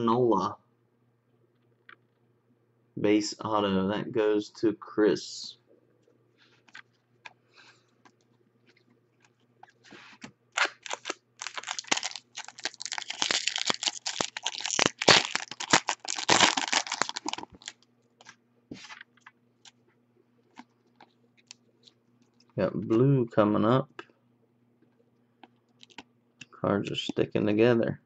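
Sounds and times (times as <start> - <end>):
foil wrapper crinkling and tearing: 10.5 - 19.8.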